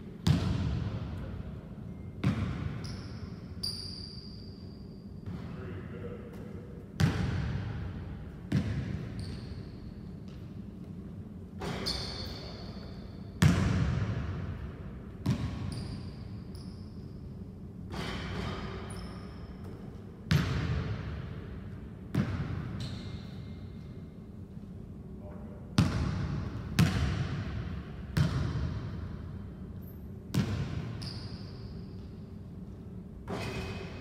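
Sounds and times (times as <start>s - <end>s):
basketball bouncing on gym floor: 0.2s - 1.2s, 2.2s - 3.2s, 6.3s - 9.6s, 13.4s - 16.3s, 17.9s - 21.4s, 22.1s - 23.4s, 25.8s - 29.3s, 30.3s - 34.0s
shoe squeaks: 2.8s - 5.3s, 9.1s - 10.0s, 11.6s - 13.2s, 15.6s - 17.2s, 18.0s - 19.8s, 22.8s - 23.8s, 31.0s - 32.1s.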